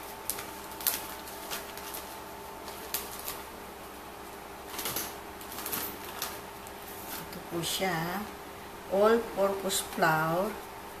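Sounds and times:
plastic bag crinkling: 0.0 - 3.6, 4.6 - 7.5
faint steady hum: 0.0 - 11.0.

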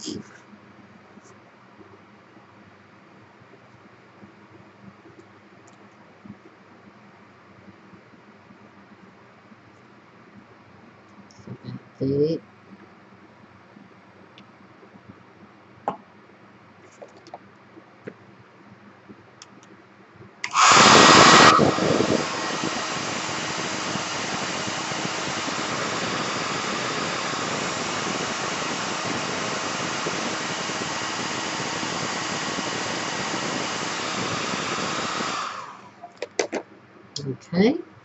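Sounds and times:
heat gun fan hiss: 20.4 - 36.1.

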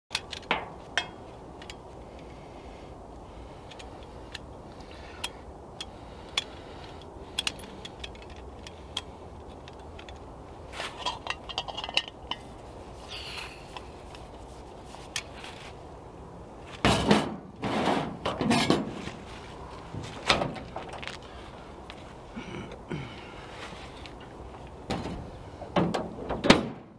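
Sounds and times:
metallic clicks of camping stove: 3.6 - 10.3.

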